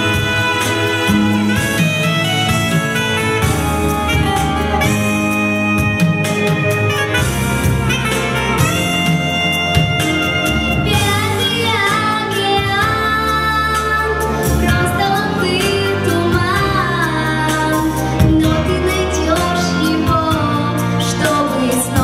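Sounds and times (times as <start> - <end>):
pop backing track: 0.0 - 22.0
girl singing: 10.8 - 22.0.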